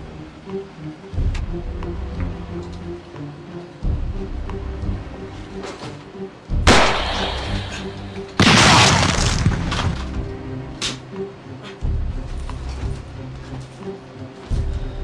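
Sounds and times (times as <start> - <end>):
background music: 0.0 - 15.0
loud crashes: 8.4 - 10.2.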